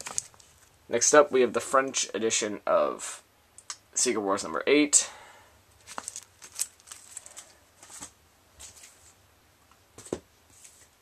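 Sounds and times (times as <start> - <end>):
plastic bags crinkling: 0.0 - 0.7, 5.8 - 9.0.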